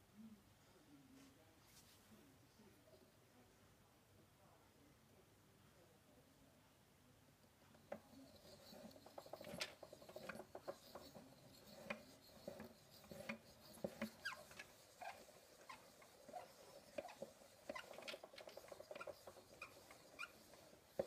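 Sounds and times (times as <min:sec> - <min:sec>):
wooden mechanism clicking: 0:07.8 - 0:21.0
wooden parts squeaking: 0:07.8 - 0:21.0.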